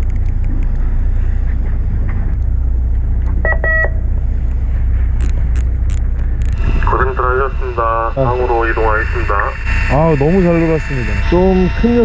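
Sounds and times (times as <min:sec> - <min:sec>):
boat engine rumbling: 0:00.0 - 0:12.0
short electronic beep: 0:03.4 - 0:04.0.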